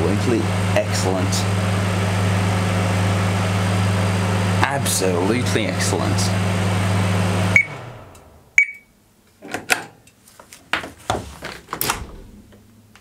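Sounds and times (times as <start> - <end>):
microwave oven humming: 0.0 - 8.7
short beep: 8.6 - 8.9
door opening clicks and knocks: 11.6 - 12.7.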